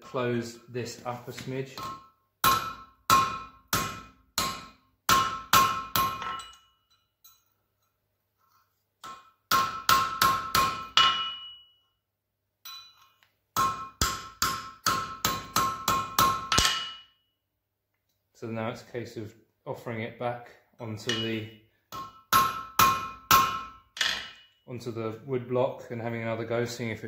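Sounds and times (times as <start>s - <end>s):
hammer ringing on metal: 1.8s - 6.7s, 9.0s - 11.7s, 13.6s - 17.1s, 21.1s - 24.6s.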